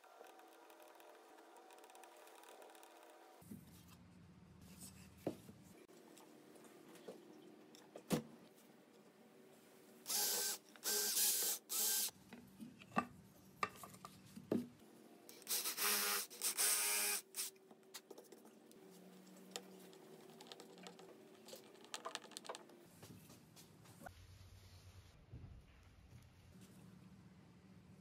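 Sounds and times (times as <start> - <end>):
cordless drill boring wood: 10.1 - 12.1, 15.4 - 17.5
handling knocks and clicks: 19.2 - 22.8.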